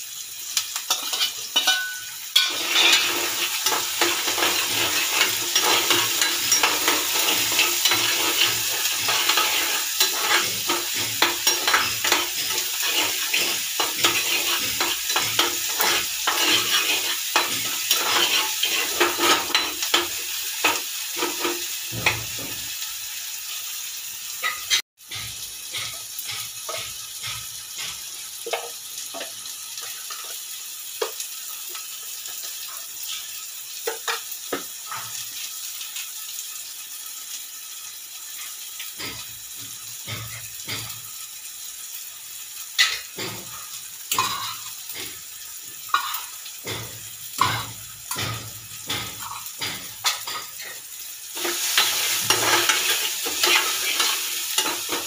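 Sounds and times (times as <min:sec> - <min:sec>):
eggs sizzling in oil: 0:00.0 - 0:55.0
metal spoon scraping a pan: 0:00.6 - 0:22.5, 0:42.8 - 0:45.2, 0:45.8 - 0:55.0.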